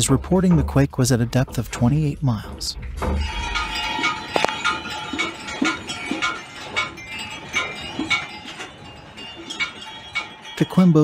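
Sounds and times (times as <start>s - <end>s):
wine glasses clinking: 3.2s - 11.0s.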